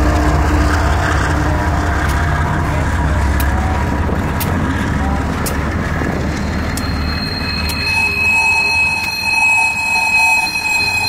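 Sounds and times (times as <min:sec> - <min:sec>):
diesel locomotive engine rumble: 0:00.0 - 0:11.0
train wheels clicking on track: 0:00.0 - 0:11.0.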